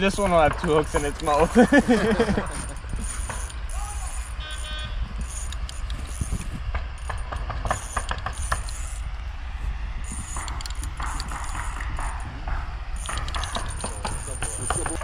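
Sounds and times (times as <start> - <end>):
fishing reel clicking: 2.7 - 9.0, 10.1 - 12.1, 13.0 - 15.0.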